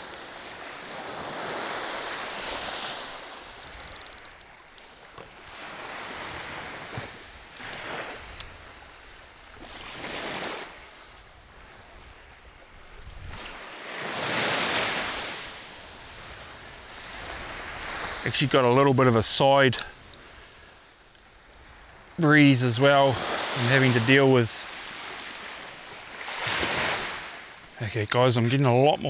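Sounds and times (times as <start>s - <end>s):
small waves washing on sand: 0.0s - 29.0s
wind on microphone: 11.5s - 18.2s.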